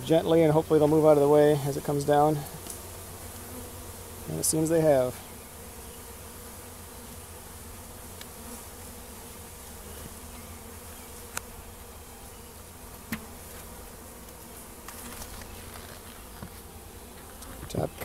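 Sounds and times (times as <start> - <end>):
bees buzzing: 0.0 - 18.0.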